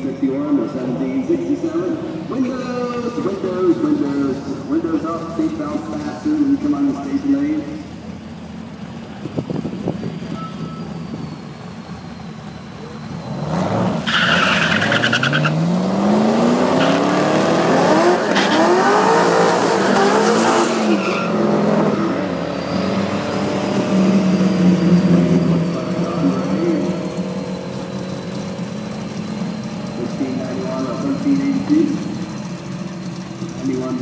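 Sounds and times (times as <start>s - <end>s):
car engine running close by: 0.0s - 34.0s
car engines accelerating: 0.0s - 34.0s
tyre squeal: 10.2s - 15.6s, 20.4s - 21.4s, 24.1s - 33.5s.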